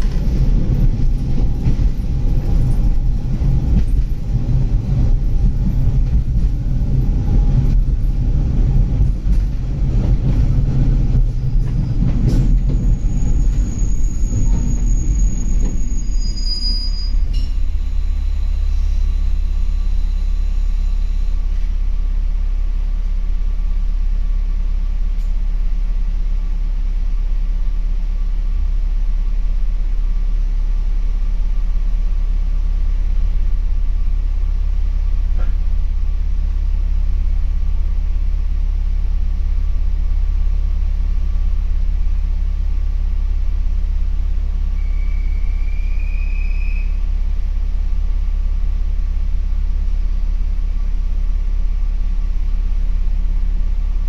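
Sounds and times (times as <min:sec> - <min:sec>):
train wheels rumbling on rail: 0:00.0 - 0:54.0
high brake squeal: 0:11.8 - 0:21.5, 0:44.7 - 0:47.0.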